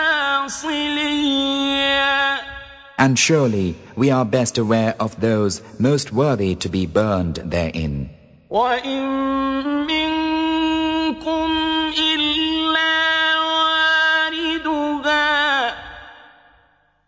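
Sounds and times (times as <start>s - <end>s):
man chanting melodically: 0.0s - 16.4s.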